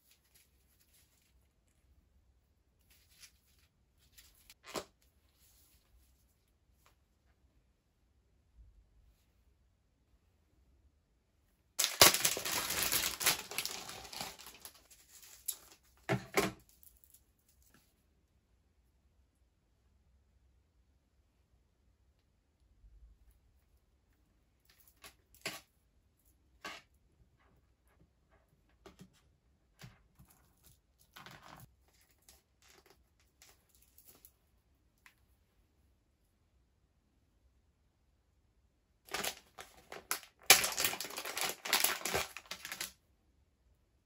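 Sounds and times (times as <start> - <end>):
plastic bag crinkling: 11.8 - 15.8, 39.1 - 42.9
plastic rustling: 11.8 - 16.0, 39.1 - 43.0.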